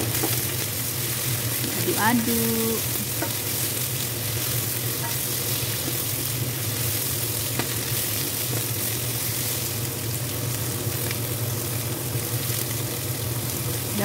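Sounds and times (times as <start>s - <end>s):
food sizzling in frying pan: 0.0s - 14.0s
spatula stirring in pan: 2.8s - 9.7s.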